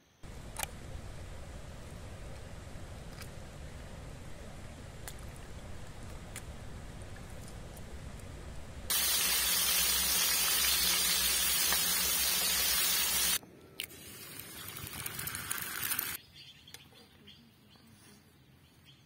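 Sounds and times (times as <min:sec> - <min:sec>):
running water: 0:00.2 - 0:16.2
egg frying on griddle: 0:08.9 - 0:13.4, 0:14.3 - 0:16.2
fish sizzling in hot oil: 0:08.9 - 0:13.4.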